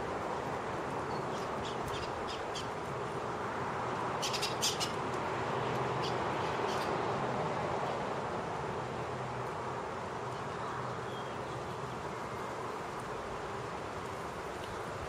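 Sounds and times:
outdoor background hiss: 0:00.0 - 0:15.0.

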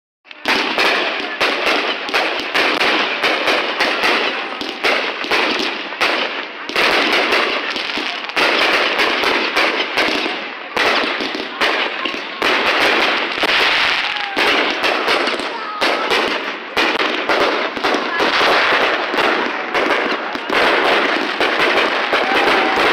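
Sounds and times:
fireworks bangs and crackling: 0:00.2 - 0:22.9.

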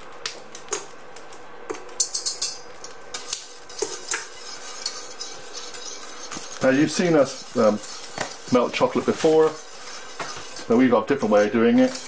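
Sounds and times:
utensils and dishes clinking: 0:01.7 - 0:05.8.

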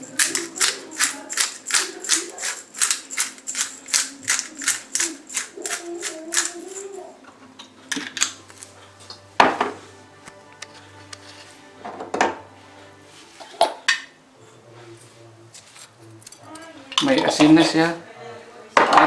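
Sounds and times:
pepper mill ratcheting clicks: 0:00.1 - 0:06.9.

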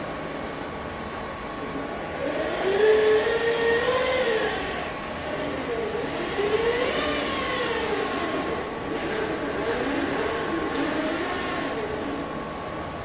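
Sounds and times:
robot drive motors whining: 0:02.2 - 0:12.3.

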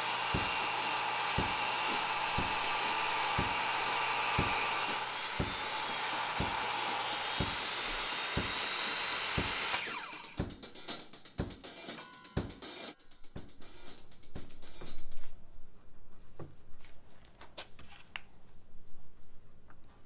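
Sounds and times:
circular saw cutting plywood: 0:00.0 - 0:10.4
drum-kit music: 0:00.0 - 0:15.3.

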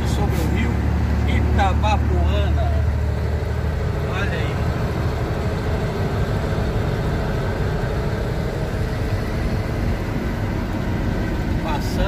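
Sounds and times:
truck diesel engine drone: 0:00.0 - 0:12.0
tyre and road noise: 0:00.0 - 0:12.0.

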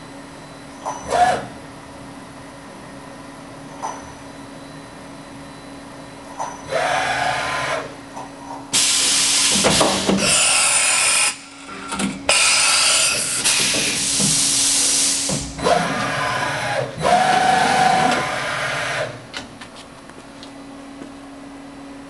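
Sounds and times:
machine motors whining: 0:06.4 - 0:08.0, 0:09.0 - 0:19.4
loud air hiss: 0:08.8 - 0:11.4, 0:12.3 - 0:15.5.

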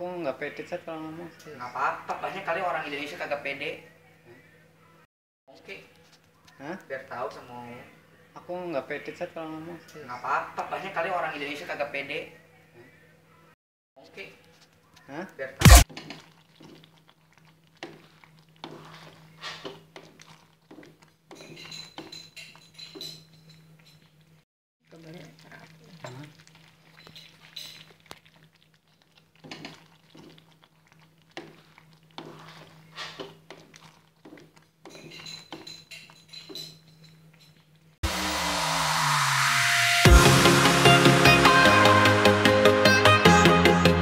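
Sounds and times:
loud electronic music: 0:15.6 - 0:15.8, 0:38.0 - 0:44.0
spatula scraping in a pan: 0:15.8 - 0:24.2, 0:26.4 - 0:36.5
low hum: 0:38.0 - 0:40.9.

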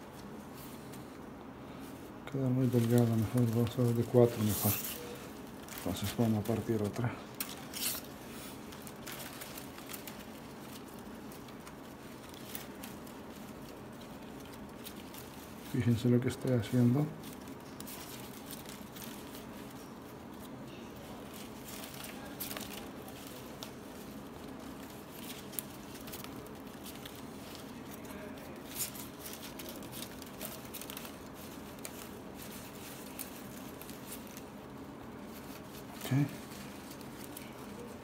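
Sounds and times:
faint steady hum: 0:00.0 - 0:38.0
palm leaf strips rustling: 0:00.0 - 0:38.0.

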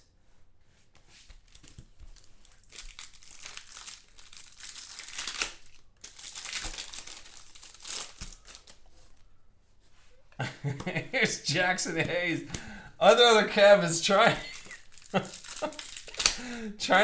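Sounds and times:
wrapper tearing and crinkling: 0:01.5 - 0:08.8, 0:14.4 - 0:16.4.

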